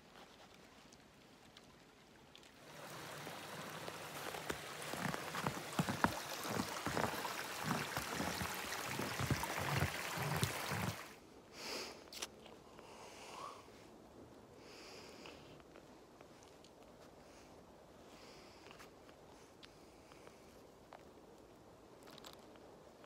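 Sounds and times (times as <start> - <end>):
stream babbling over rocks: 2.6 - 11.2.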